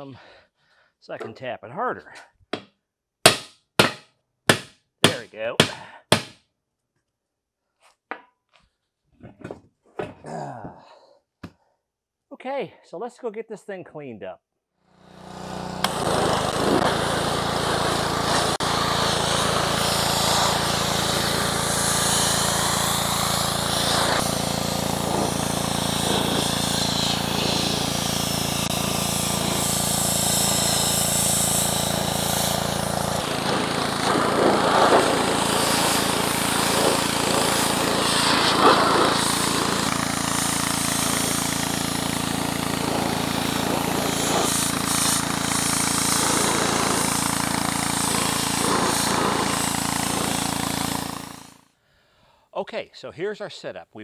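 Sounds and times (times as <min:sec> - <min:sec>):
low motor hum: 0:14.9 - 0:51.4
pressure washer jet hissing: 0:15.0 - 0:51.6.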